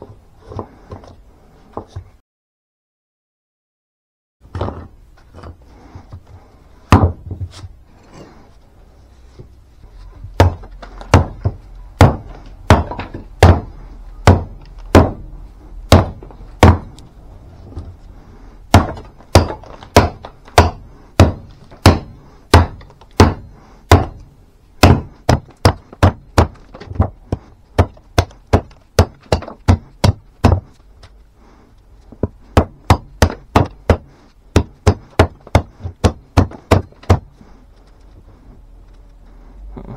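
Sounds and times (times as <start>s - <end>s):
axe chopping wood: 6.9s - 7.4s, 10.4s - 15.3s, 15.9s - 17.0s, 18.7s - 24.2s, 24.8s - 30.8s, 32.2s - 37.4s.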